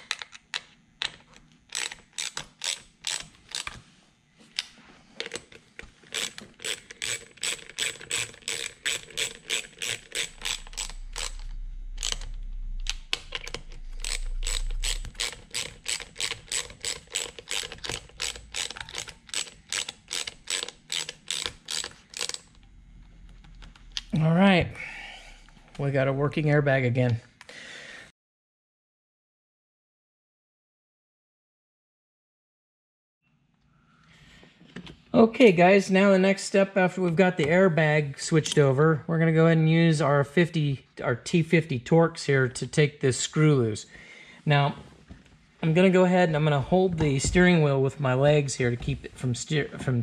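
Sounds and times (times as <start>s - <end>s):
socket ratchet clicking: 0.1s - 3.8s, 5.2s - 22.6s.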